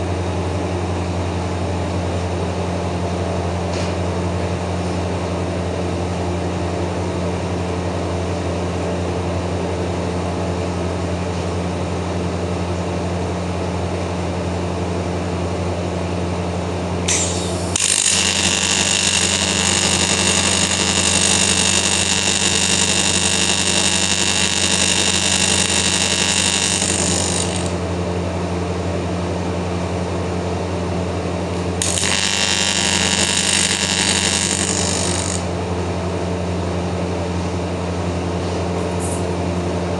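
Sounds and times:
steady low hum: 15.3s - 38.1s
welding arc buzzing: 17.0s - 28.2s, 31.4s - 35.8s.

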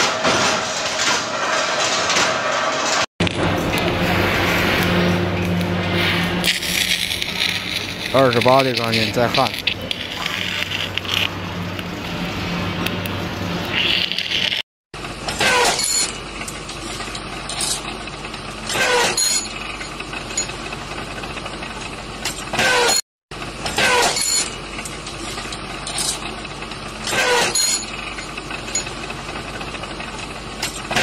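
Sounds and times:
machine running: 0.0s - 14.6s.

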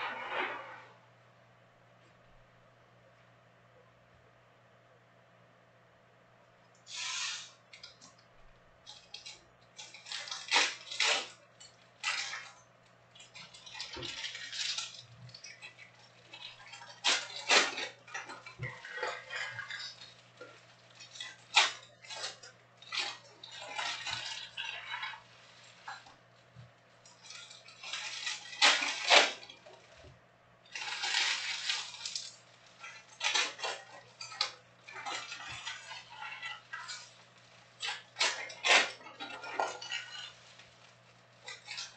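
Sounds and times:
faint steady hum: 0.0s - 41.9s
plastic wrappers crinkling: 8.8s - 30.1s, 30.7s - 41.9s.

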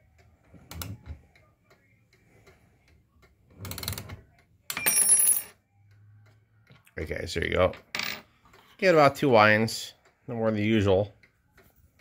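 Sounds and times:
clock ticking: 0.0s - 4.7s, 8.8s - 12.0s.

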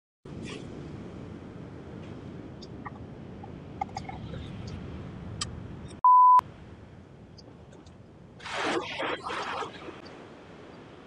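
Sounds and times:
censor bleep: 6.0s - 6.4s.

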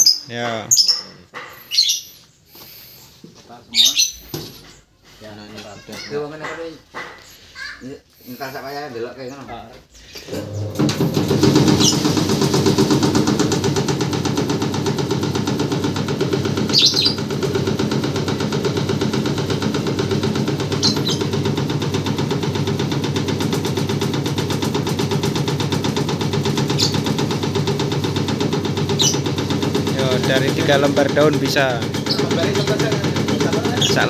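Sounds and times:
leaf-chopping machine clattering: 10.2s - 34.0s.

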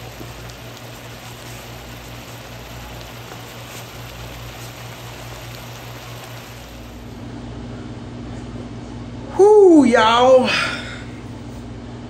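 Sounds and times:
faint crackles: 0.0s - 7.2s
meat sizzling in a skillet: 0.0s - 7.2s
steady low hum: 0.0s - 12.0s.

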